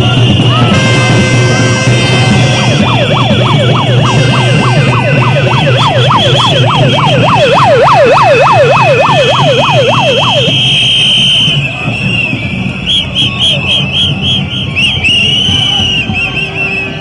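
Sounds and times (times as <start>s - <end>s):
protest crowd noise: 0.0s - 17.0s
siren yelping: 2.1s - 11.7s.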